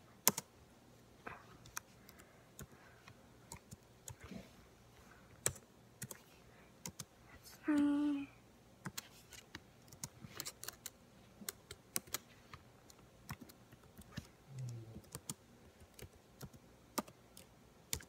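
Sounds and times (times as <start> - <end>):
fingers typing: 0.2 - 0.5, 5.4 - 6.2, 6.8 - 7.1, 8.8 - 12.2, 12.8 - 18.0.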